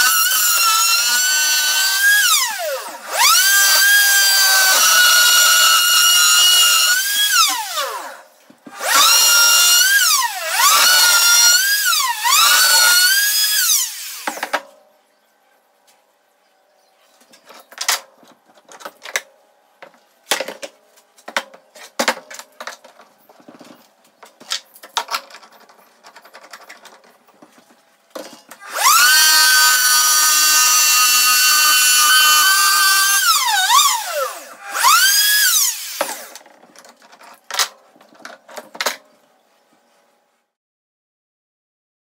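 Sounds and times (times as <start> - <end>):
electric router whining: 0.0 - 14.4, 28.6 - 36.4.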